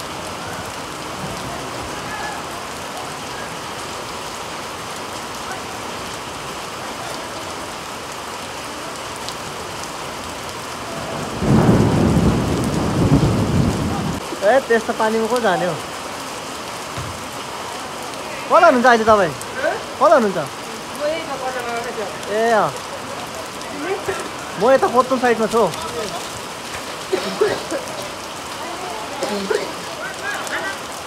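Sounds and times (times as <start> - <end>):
heavy rain: 0.0 - 31.0.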